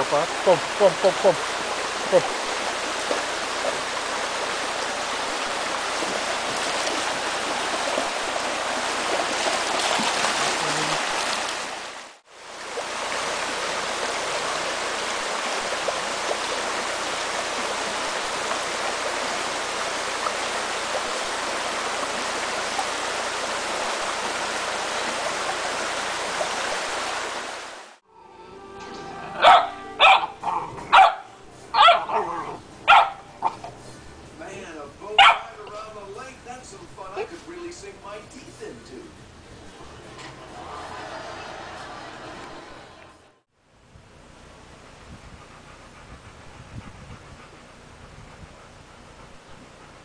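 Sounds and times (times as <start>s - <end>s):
stream rushing over stones: 0.0s - 28.0s.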